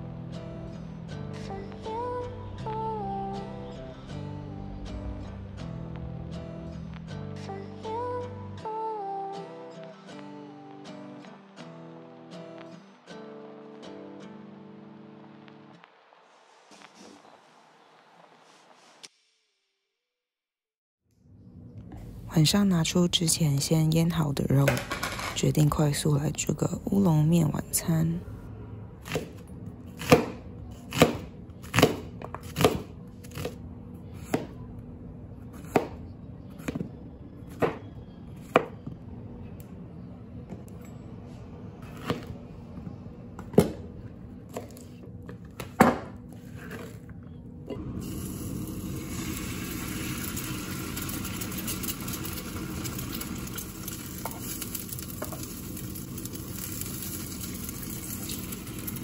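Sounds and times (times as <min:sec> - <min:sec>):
knife chopping on cutting board: 0:30.0 - 0:33.6, 0:34.2 - 0:34.5, 0:35.6 - 0:36.0, 0:37.6 - 0:37.8, 0:41.9 - 0:42.3
egg sizzling in oil: 0:48.0 - 0:59.0.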